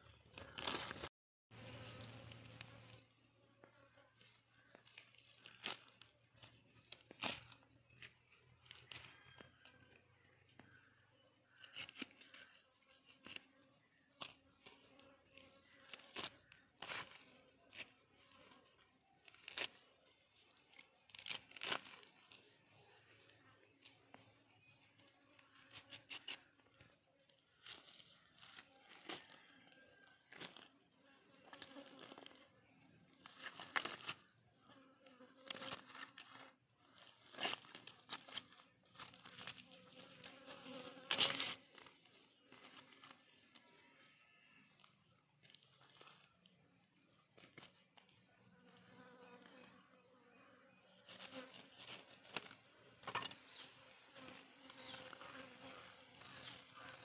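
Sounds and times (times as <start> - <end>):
rustling and crinkling: 0.3 - 3.0, 35.4 - 43.8, 45.4 - 46.6.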